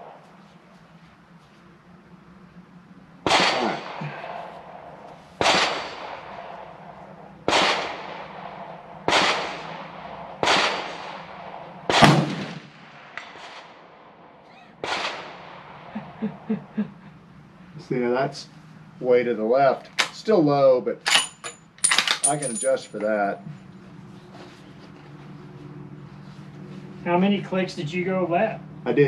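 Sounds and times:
rifle shots echoing: 3.2s - 14.0s, 14.8s - 15.9s.

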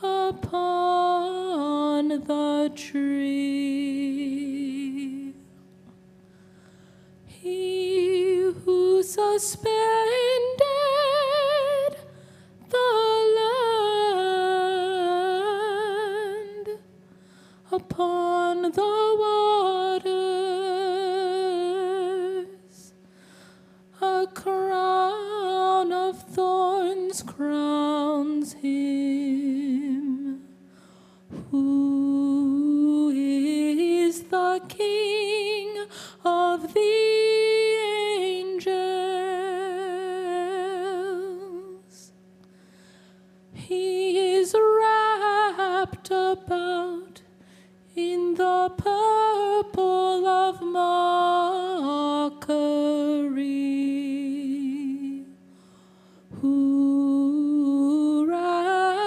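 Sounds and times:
person singing a hymn: 17.7s - 22.9s.

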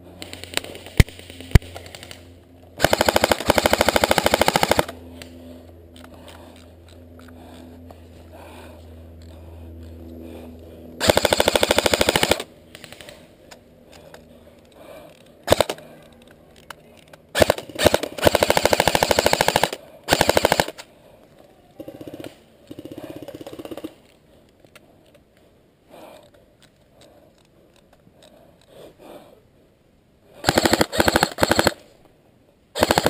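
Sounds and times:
airsoft rifle firing bursts: 0.2s - 2.2s, 2.8s - 5.0s, 11.0s - 13.2s, 15.4s - 15.8s, 17.3s - 20.8s, 21.9s - 24.0s, 30.4s - 31.8s, 32.8s - 33.0s.

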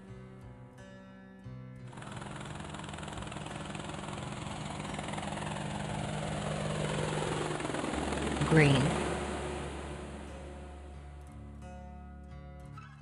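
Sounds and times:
helicopter engine hum: 1.9s - 11.3s
helicopter rotor chopping: 1.9s - 11.3s.

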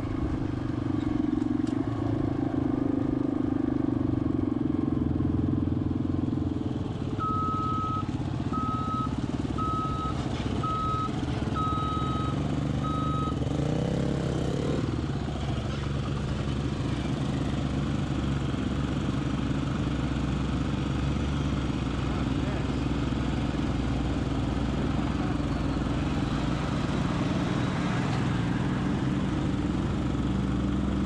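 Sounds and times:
engine rumble: 0.0s - 31.0s
backup alarm beeping: 7.2s - 13.4s.

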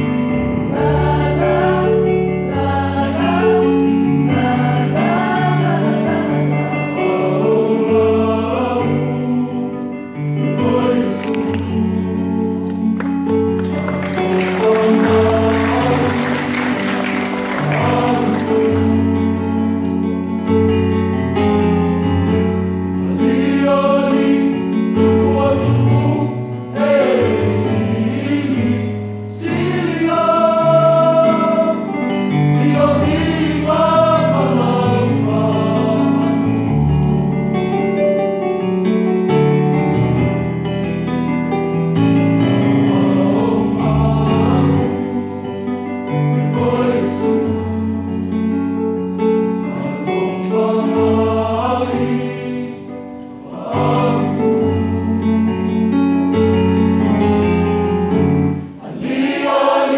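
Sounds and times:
choir singing in harmony: 0.0s - 38.1s, 39.2s - 59.9s.

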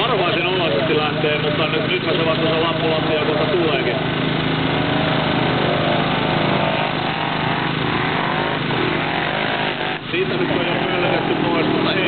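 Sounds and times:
buggy engine revving hard: 0.0s - 12.0s
wheels spinning in sand: 0.0s - 12.0s
commentator speaking: 10.1s - 12.0s.

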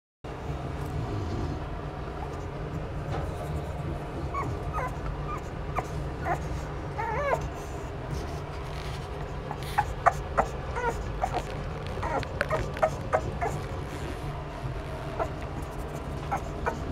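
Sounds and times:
steady low hum: 0.3s - 16.9s
puppy whining and yipping: 4.2s - 7.8s, 8.9s - 16.9s.

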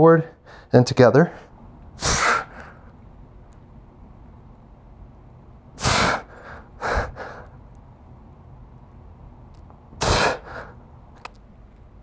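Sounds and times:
man breathing heavily: 0.3s - 2.9s, 5.8s - 7.6s, 10.0s - 10.9s.

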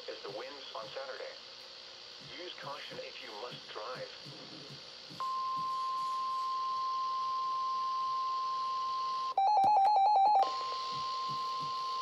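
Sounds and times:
steady warning alarm tone: 5.2s - 12.0s.

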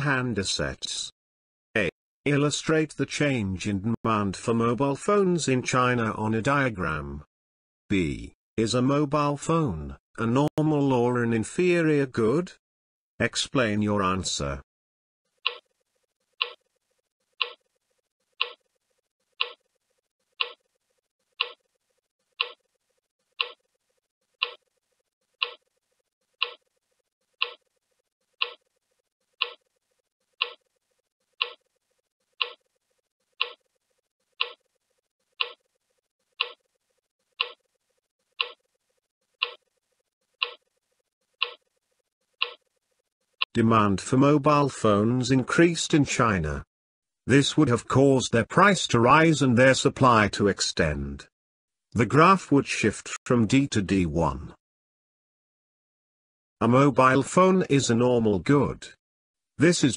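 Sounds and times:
clock ticking: 15.4s - 15.7s, 16.4s - 16.6s, 17.4s - 17.7s, 18.4s - 18.6s, 19.4s - 19.7s, 20.4s - 20.7s, 21.4s - 21.6s, 22.4s - 22.6s, 23.4s - 23.7s, 24.4s - 24.6s, 25.4s - 25.7s, 26.4s - 26.7s, 27.4s - 27.7s, 28.4s - 28.7s, 29.4s - 29.7s, 30.4s - 30.7s, 31.4s - 31.7s, 32.4s - 32.7s, 33.4s - 33.7s, 34.4s - 34.7s, 35.4s - 35.7s, 36.4s - 36.6s, 37.4s - 37.6s, 38.4s - 38.6s, 39.4s - 39.6s, 40.4s - 40.6s, 41.4s - 41.6s, 42.4s - 42.7s.

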